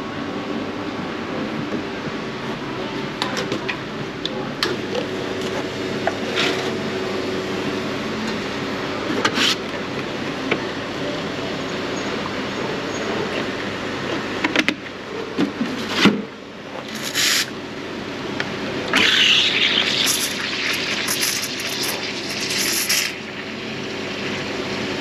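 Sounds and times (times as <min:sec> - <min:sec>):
espresso machine humming: 0:04.8 - 0:14.2, 0:16.8 - 0:25.0.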